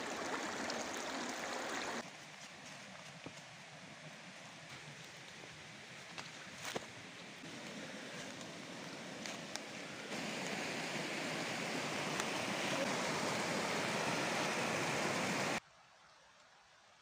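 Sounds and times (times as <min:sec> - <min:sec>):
stream rushing over rocks: 0:00.0 - 0:02.0, 0:07.4 - 0:15.6.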